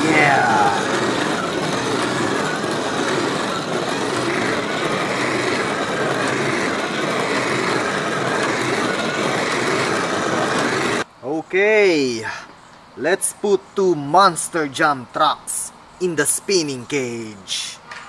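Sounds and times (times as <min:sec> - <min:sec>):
toy motor and gears whirring: 0:00.0 - 0:11.0.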